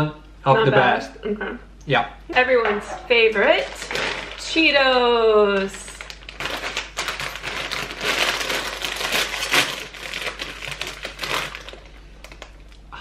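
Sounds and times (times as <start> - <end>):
plastic snack bag crinkling: 3.4 - 12.8.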